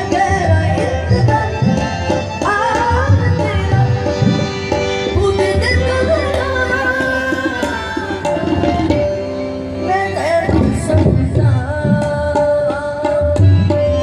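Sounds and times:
young man singing: 0.0 - 4.2, 9.8 - 14.0
harmonium: 0.0 - 14.0
tabla: 0.0 - 14.0.

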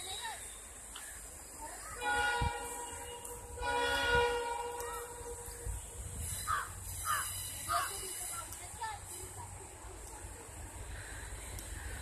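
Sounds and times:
locomotive air horn blasts: 2.0 - 6.5
crow cawing: 6.4 - 7.9.

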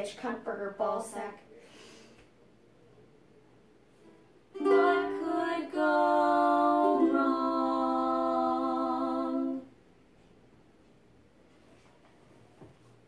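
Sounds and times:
ukulele strumming: 4.5 - 9.6
women singing together: 4.6 - 9.7.

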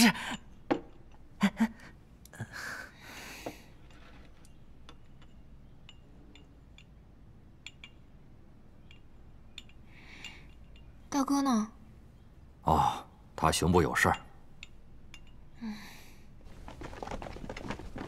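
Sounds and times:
chopsticks clinking on bowls: 8.8 - 11.1, 14.0 - 15.5.

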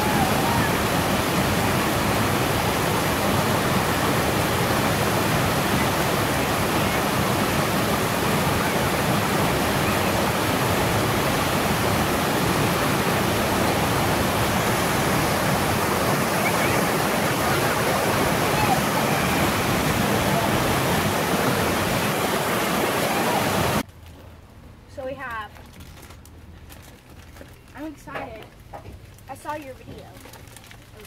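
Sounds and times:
waterfall rushing: 0.0 - 23.8.

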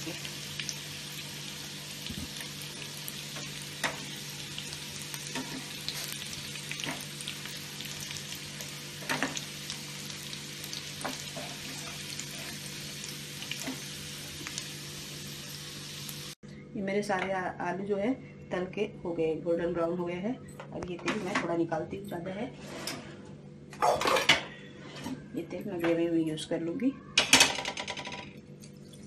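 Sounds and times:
potatoes sizzling in oil: 0.0 - 16.4.

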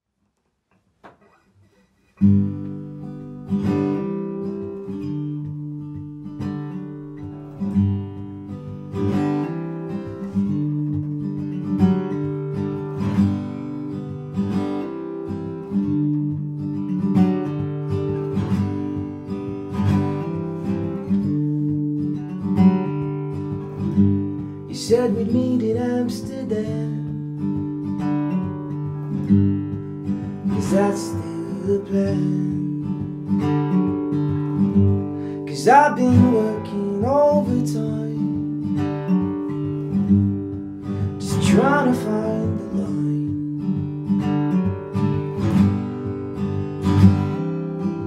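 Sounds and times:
acoustic guitar chords: 1.0 - 48.0.

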